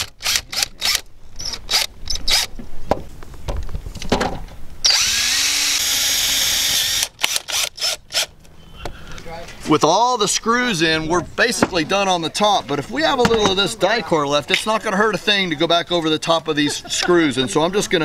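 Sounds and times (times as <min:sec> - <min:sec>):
cordless drill driving screws: 0:00.0 - 0:02.5, 0:04.8 - 0:08.3.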